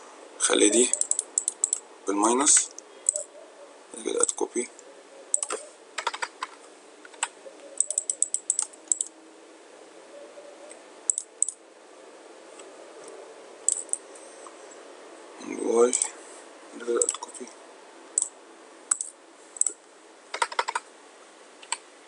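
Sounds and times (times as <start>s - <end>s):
typing on computer keyboard: 0.9s - 1.8s, 5.4s - 6.5s, 7.1s - 9.1s, 11.1s - 11.6s, 13.7s - 14.0s, 17.0s - 17.3s, 18.9s - 20.9s.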